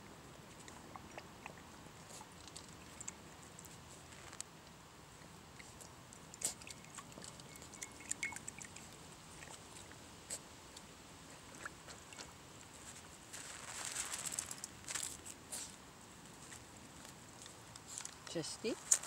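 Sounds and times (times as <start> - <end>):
puppies lapping water: 0.1 - 4.1, 5.1 - 12.8.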